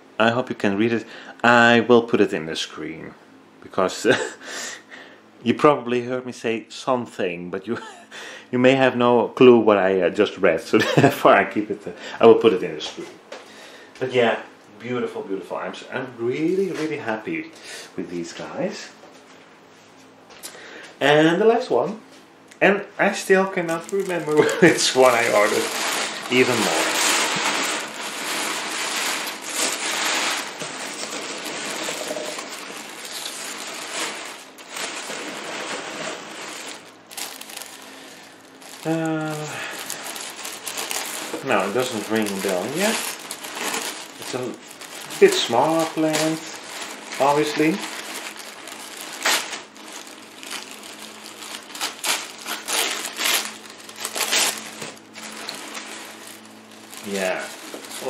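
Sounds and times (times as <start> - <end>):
packing peanuts shifting: 23.2 - 58.0
tissue paper crinkling: 23.6 - 58.0.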